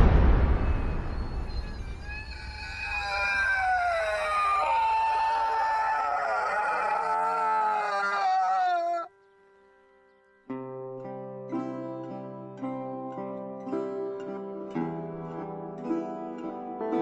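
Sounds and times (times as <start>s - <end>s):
low rumble: 0.0s - 2.6s
man screaming: 2.3s - 9.1s.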